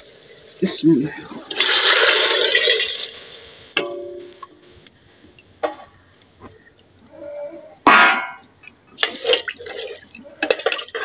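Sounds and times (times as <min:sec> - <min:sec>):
food bubbling and sizzling in a pot: 0:00.0 - 0:07.1, 0:08.4 - 0:11.0
metal clank with a ring: 0:03.8 - 0:04.6, 0:07.9 - 0:08.4.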